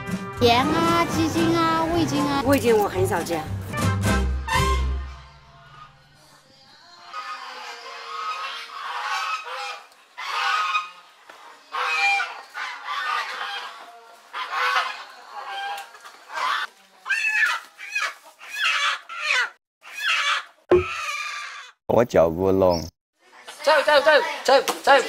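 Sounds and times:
chickens squawking: 7.0s - 21.8s.

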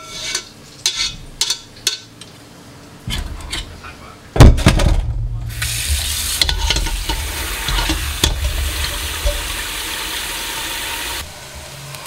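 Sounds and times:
tap water running into sink: 5.5s - 11.2s.

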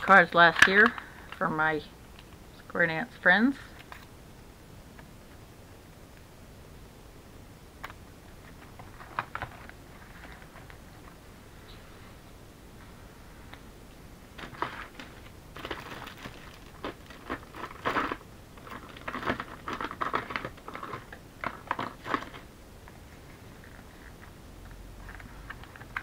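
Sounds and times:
paper rustling and crinkling: 8.4s - 11.2s, 14.4s - 22.5s.

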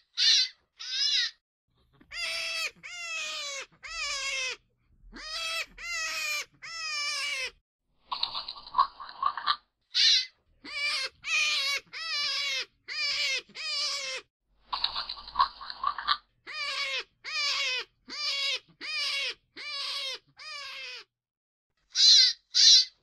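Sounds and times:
hare wailing calls: 2.0s - 4.6s, 15.8s - 21.1s.

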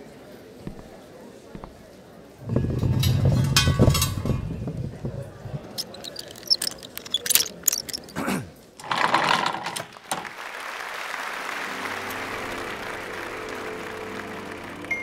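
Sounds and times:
quick mechanical clicks: 5.7s - 8.2s.

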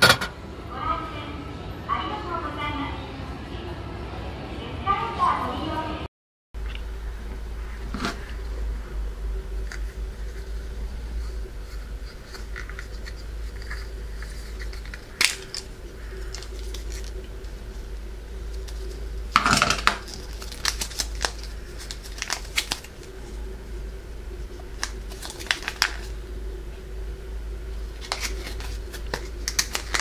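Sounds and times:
paper crinkling: 9.5s - 23.5s, 24.4s - 26.2s, 27.9s - 30.0s
paper and plastic crackle: 9.6s - 23.5s, 24.4s - 26.2s, 27.9s - 30.0s.

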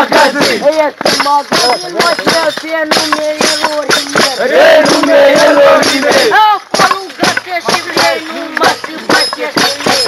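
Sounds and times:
wavering group shout: 0.0s - 1.0s, 4.0s - 10.0s
drums beating steady rhythm: 0.0s - 10.0s
men chanting and shouting: 0.0s - 10.0s.

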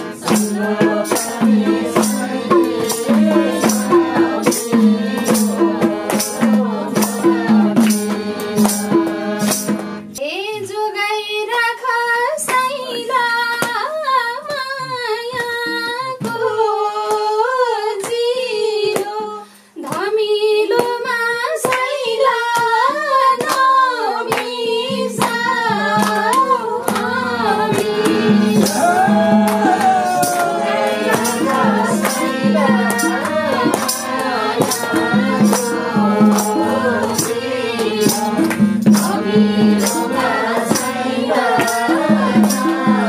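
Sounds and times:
hand drum percussion: 0.0s - 10.2s, 22.5s - 43.0s
woman singing: 0.0s - 43.0s.

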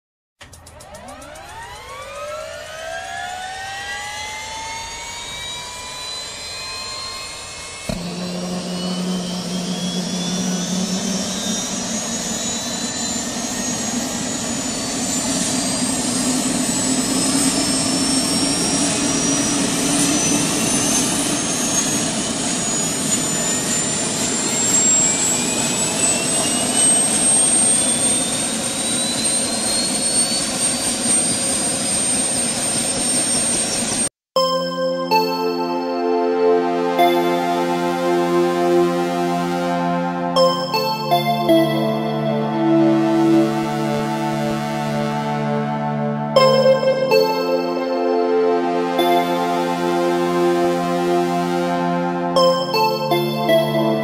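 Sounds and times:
small motor whining: 4.2s - 32.0s
rotor whirring hum: 4.4s - 20.3s.

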